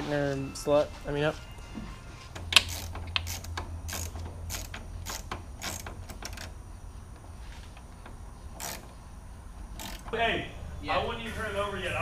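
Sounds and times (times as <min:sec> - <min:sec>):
ratchet wrench clicking: 0:02.4 - 0:06.5, 0:08.0 - 0:09.0, 0:09.7 - 0:10.1.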